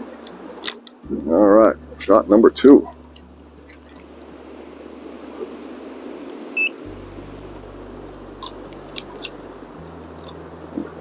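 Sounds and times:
steady background hiss: 0:00.0 - 0:11.0
short electronic beep: 0:06.6 - 0:06.8.

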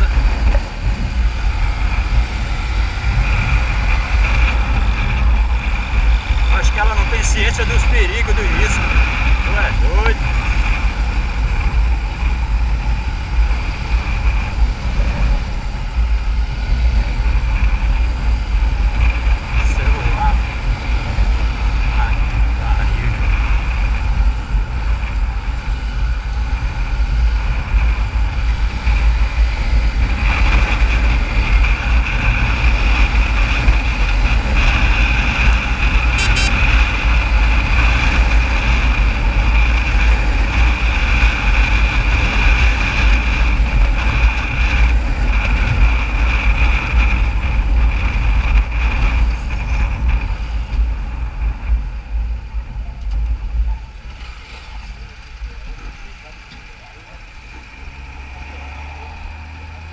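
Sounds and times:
motorcycle engine: 0:00.0 - 0:59.9
wind rumble on microphone: 0:00.0 - 0:59.9
steady high hiss: 0:36.2 - 0:36.5.

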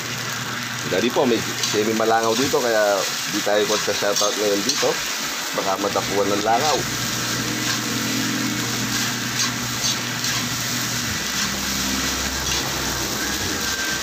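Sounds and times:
rice sizzling in a wok: 0:00.0 - 0:14.0
metal spatula scraping wok: 0:01.5 - 0:14.0.

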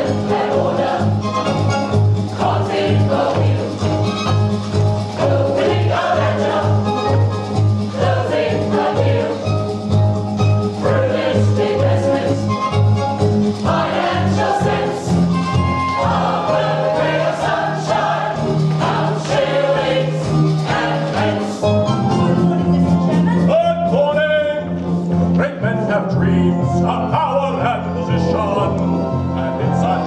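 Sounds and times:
mixed chorus singing: 0:00.0 - 0:01.3, 0:02.3 - 0:04.0, 0:05.1 - 0:09.7, 0:10.8 - 0:12.6, 0:13.6 - 0:21.8
instrumental accompaniment: 0:00.0 - 0:30.0.

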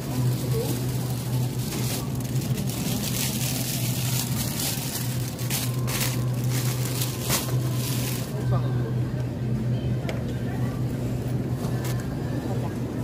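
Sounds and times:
plastic wrapping crinkling: 0:00.0 - 0:08.4
steady low hum: 0:00.0 - 0:13.0.

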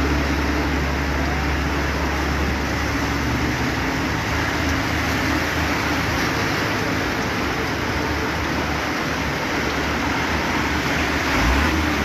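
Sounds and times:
floodwater rushing: 0:00.0 - 0:12.0
low engine hum: 0:00.0 - 0:12.0
truck engines: 0:00.0 - 0:12.0.

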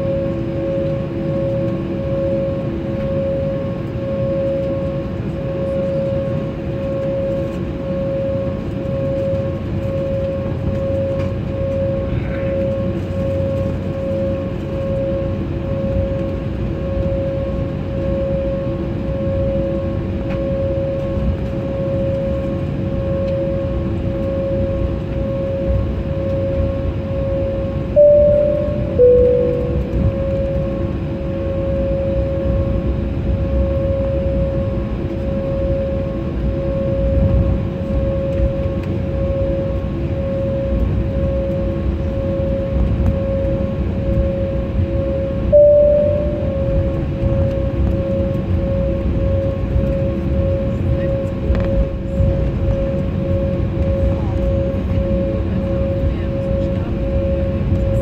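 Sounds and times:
jet engine drone with pulsing whine: 0:00.0 - 0:58.0
two-note cabin chime: 0:28.0 - 0:30.3, 0:45.5 - 0:46.9.

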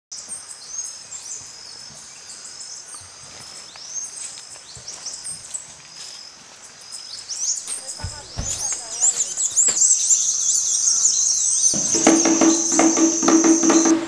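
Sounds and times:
bird chirps and whistles: 0:08.4 - 0:14.0.

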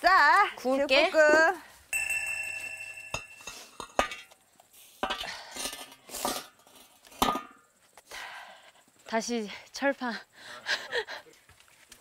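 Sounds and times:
iron lid clanking on bricks: 0:02.0 - 0:04.4, 0:05.0 - 0:07.6.

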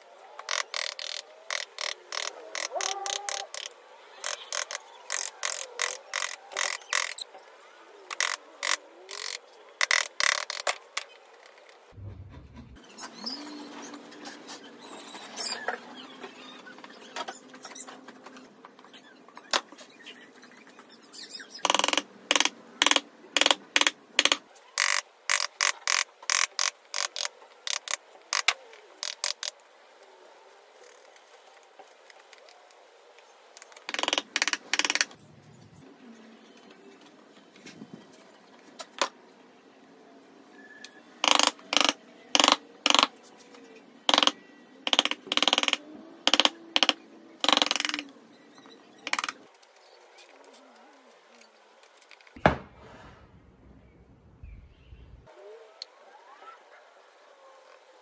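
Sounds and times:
chisel cutting wood: 0:00.5 - 0:07.2.

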